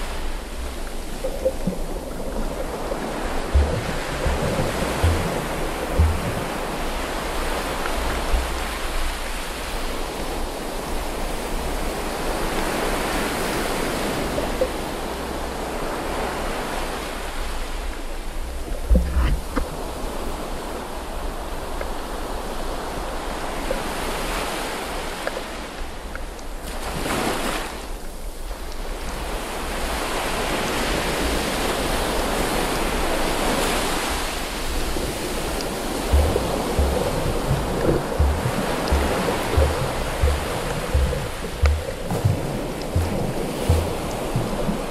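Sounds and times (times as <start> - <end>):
underwater water rushing: 0.0 - 15.6, 34.5 - 44.9
low rumbling bumps: 1.4 - 7.4, 36.0 - 44.9
heavy thump: 3.6 - 6.7, 36.1 - 44.7.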